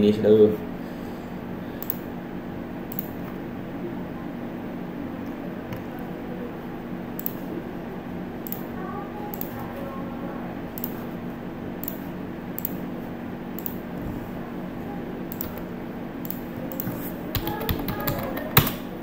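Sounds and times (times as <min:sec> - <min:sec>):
low hum of computer: 0:00.0 - 0:19.0
computer mouse clicking: 0:01.8 - 0:02.1, 0:02.9 - 0:03.4, 0:07.1 - 0:07.5, 0:08.4 - 0:08.7, 0:09.3 - 0:09.7, 0:10.7 - 0:11.1, 0:11.8 - 0:12.8, 0:13.6 - 0:13.8, 0:15.3 - 0:18.8.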